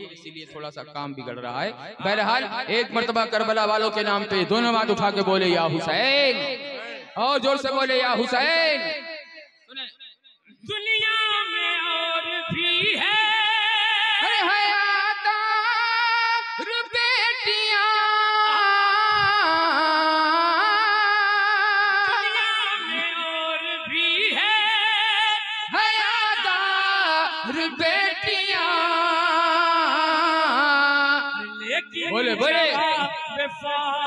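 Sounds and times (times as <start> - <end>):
man singing into a microphone: 10.6 - 34.0.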